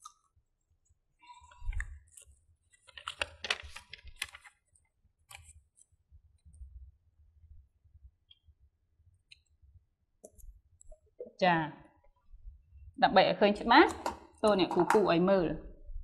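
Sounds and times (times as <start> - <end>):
paper crinkling and rustling: 1.3 - 6.0.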